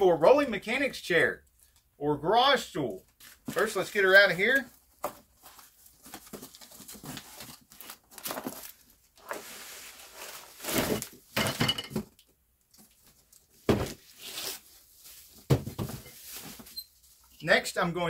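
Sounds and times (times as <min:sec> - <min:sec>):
cardboard box rustling: 0:04.6 - 0:11.2.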